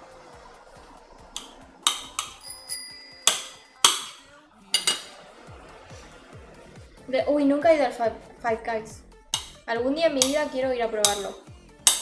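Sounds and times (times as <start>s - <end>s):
knife clinking on ceramic plate: 1.4s - 4.2s, 4.8s - 5.2s, 9.4s - 9.6s, 11.0s - 12.0s
high ringing tone: 2.2s - 3.8s.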